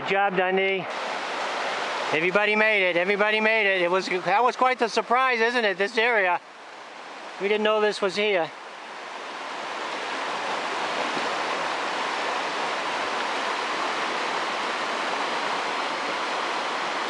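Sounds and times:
river rapids rushing: 0.8s - 17.0s.

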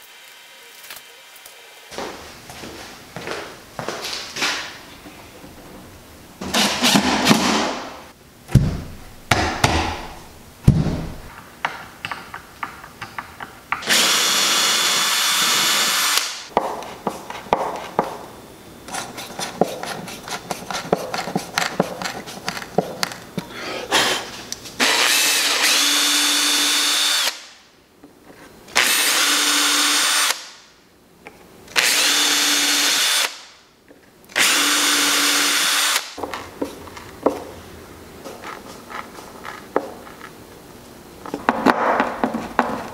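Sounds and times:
cordless drill drilling: 13.8s - 16.4s, 24.8s - 27.4s, 28.8s - 30.4s, 31.8s - 33.4s, 34.4s - 36.1s.

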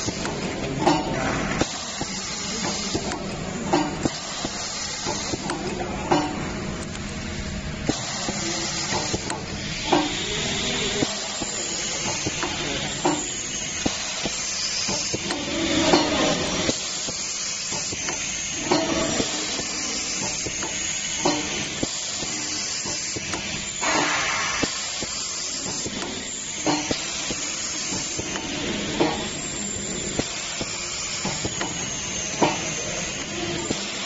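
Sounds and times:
steady hiss: 7.9s - 34.0s.

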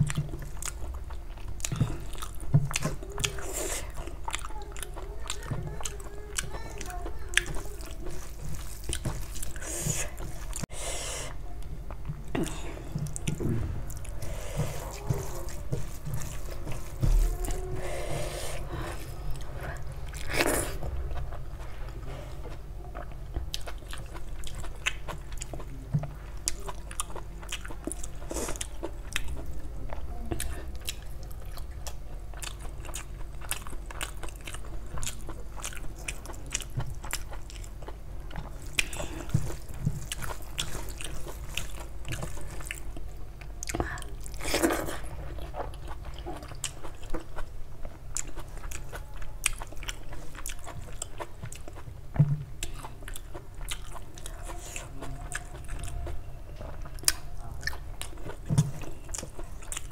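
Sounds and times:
fingers mixing wet rice on plate: 6.7s - 10.6s
wet mouth chewing: 22.4s - 59.9s.

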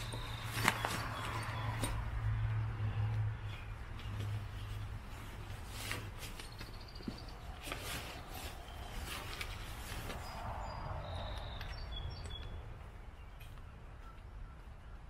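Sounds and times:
fabric bag rustling and clicking: 0.0s - 2.0s
bird chirps: 6.4s - 15.0s.

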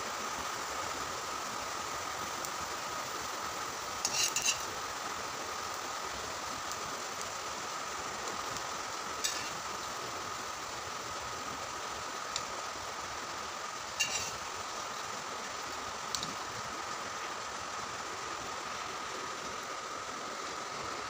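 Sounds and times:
potatoes sizzling in oil: 0.0s - 21.0s
spoon clinking against pan: 14.0s - 14.4s.

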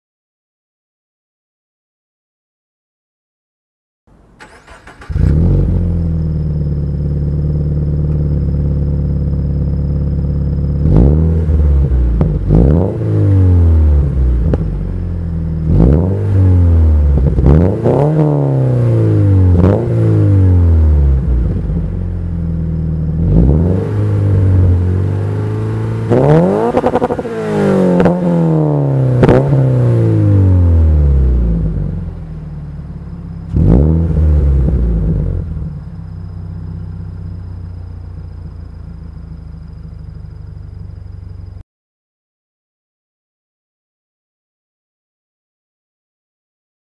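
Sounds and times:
car engine idling and revving: 4.1s - 41.6s.

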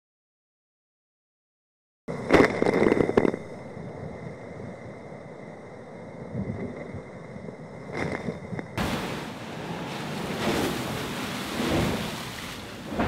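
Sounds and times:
wind on microphone: 6.1s - 13.0s
seawater crashing over deck: 8.8s - 13.0s.

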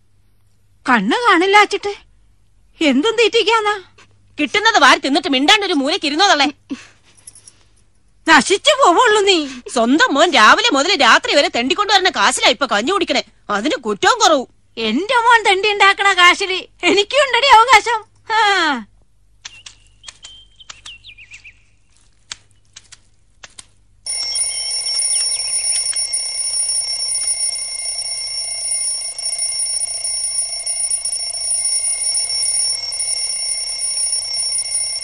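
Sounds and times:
alarm clock bell ringing: 24.1s - 35.0s.

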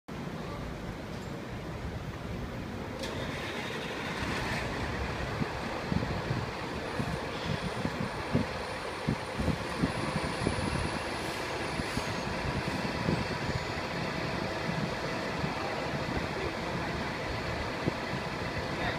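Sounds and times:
diesel engine rumbling: 0.1s - 18.9s
air brake hisses: 11.2s - 12.9s.

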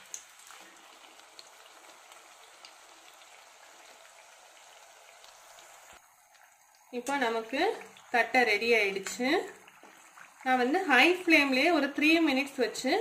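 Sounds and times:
small crackles: 0.0s - 8.2s
food deep-frying in hot oil: 0.0s - 13.0s.

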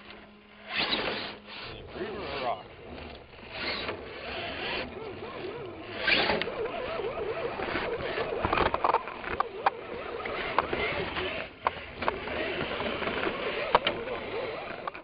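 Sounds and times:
electric motor and gears whining: 0.0s - 15.0s
sharp clicks and knocks: 7.6s - 15.0s.

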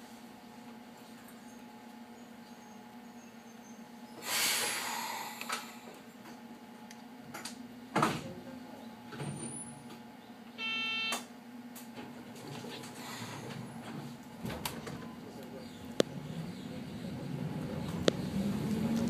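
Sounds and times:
air hiss: 4.2s - 5.2s
short buzzer tone: 10.6s - 11.3s
steady low hum: 12.6s - 19.0s.

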